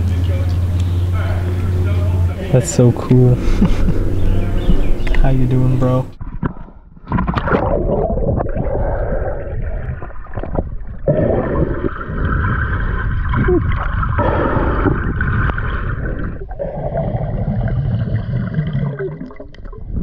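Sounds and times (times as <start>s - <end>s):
muffled underwater river gurgling: 7.3s - 20.0s.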